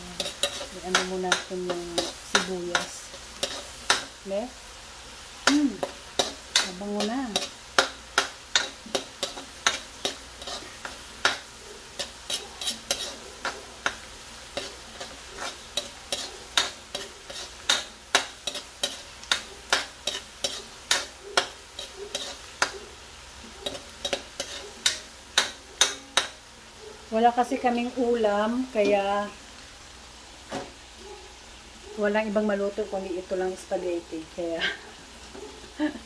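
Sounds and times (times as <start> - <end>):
metal spoon scraping metal wok: 0.0 - 4.2, 5.8 - 22.7, 23.6 - 26.4
faint sizzle of frying food: 0.0 - 36.0.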